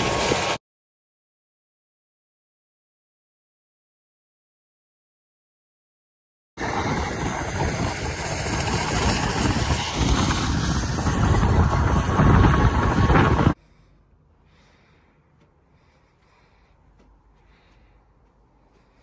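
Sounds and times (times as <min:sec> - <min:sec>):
wind blowing across microphone: 0:06.6 - 0:13.6.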